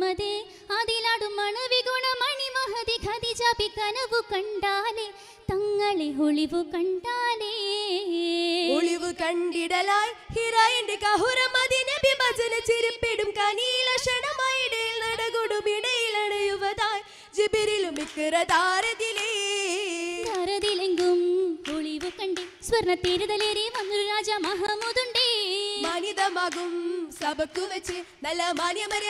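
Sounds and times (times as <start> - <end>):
girls singing in chorus: 17.4 - 29.0
sharp hand claps: 17.7 - 29.0.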